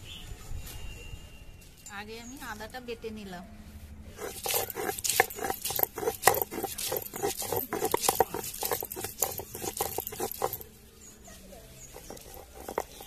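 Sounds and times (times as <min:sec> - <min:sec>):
stone roller scraping on stone slab: 0:04.1 - 0:10.8, 0:11.7 - 0:13.0.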